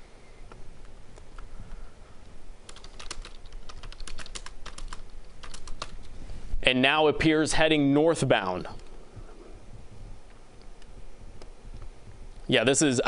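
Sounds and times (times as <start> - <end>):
computer keyboard typing: 2.7 - 6.1.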